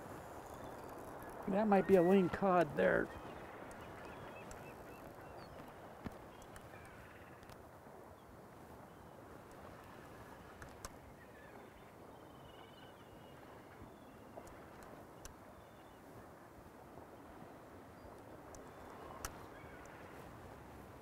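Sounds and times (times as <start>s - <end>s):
distant bird calls: 0.0s - 7.5s, 10.9s - 16.1s, 17.2s - 20.3s.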